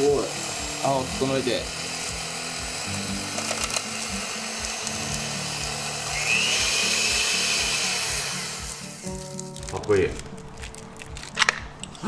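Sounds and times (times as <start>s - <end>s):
electric hand mixer whipping cream: 0.0s - 9.2s.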